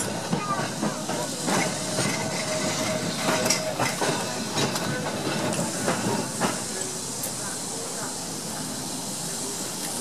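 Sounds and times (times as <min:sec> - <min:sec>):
wheels clicking on rails: 0:00.0 - 0:07.5
tram running along track: 0:00.0 - 0:10.0.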